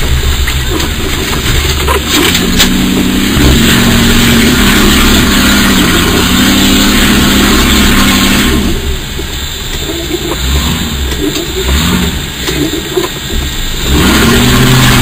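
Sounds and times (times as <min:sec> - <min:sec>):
off-road vehicle engine revving: 0:00.0 - 0:15.0.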